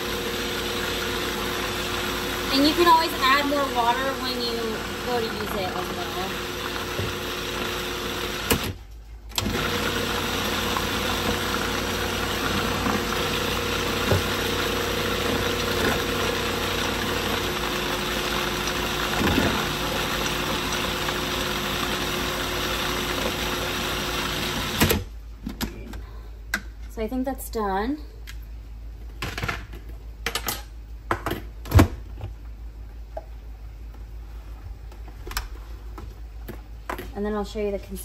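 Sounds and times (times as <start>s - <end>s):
food processor motor running: 0.0s - 8.8s, 9.4s - 25.1s.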